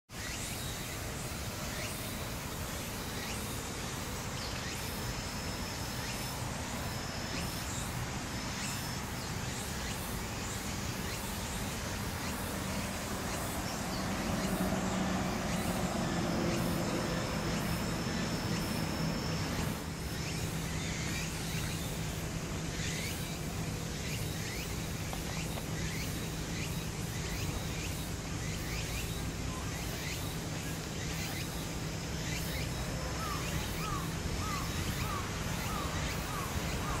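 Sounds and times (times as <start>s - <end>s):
distant traffic hum: 0.1s - 37.0s
thin high whine: 9.6s - 23.9s.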